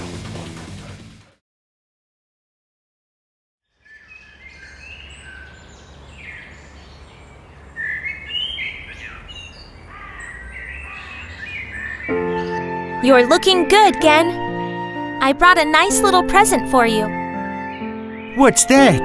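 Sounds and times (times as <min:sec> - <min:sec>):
birds chirping and calling: 0:03.7 - 0:12.6.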